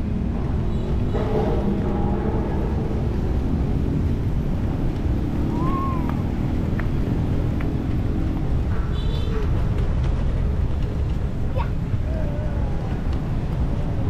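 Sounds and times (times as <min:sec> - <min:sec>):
steady low rumble: 0:00.0 - 0:08.7.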